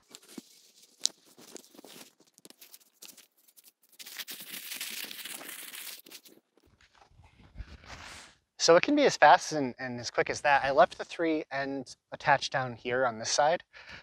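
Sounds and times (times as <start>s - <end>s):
tent fabric rustling and crinkling: 0.0s - 8.3s.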